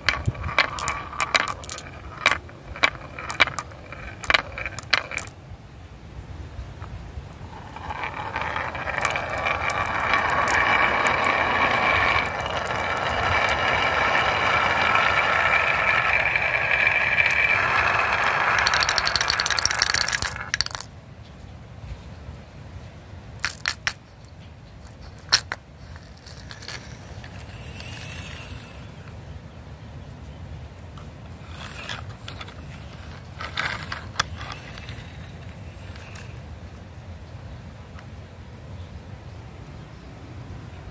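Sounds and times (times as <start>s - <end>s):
marbles clacking into wooden bowl: 0.0s - 5.4s, 6.7s - 20.9s, 23.4s - 24.0s, 24.9s - 28.9s, 31.3s - 36.5s
marbles rolling down wooden track: 0.0s - 5.4s, 6.7s - 20.9s, 23.4s - 24.0s, 24.9s - 29.1s, 31.3s - 36.6s.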